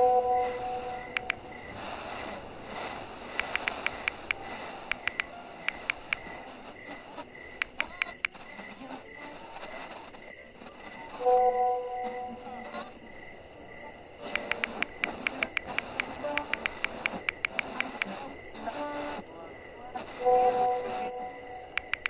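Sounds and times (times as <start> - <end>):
faint pulsing chirp: 0.0 - 22.0
touchscreen keyboard clicks: 1.1 - 1.4, 3.4 - 6.4, 7.6 - 8.4, 14.3 - 18.1, 21.7 - 22.0.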